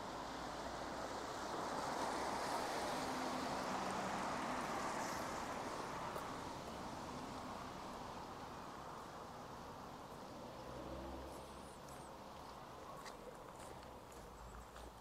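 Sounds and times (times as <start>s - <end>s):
tyres hissing on wet road: 0.0s - 13.8s.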